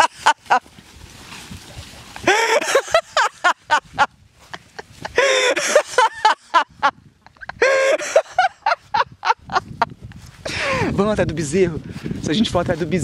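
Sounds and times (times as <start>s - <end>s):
people laughing: 0.0s - 0.7s, 2.2s - 10.0s.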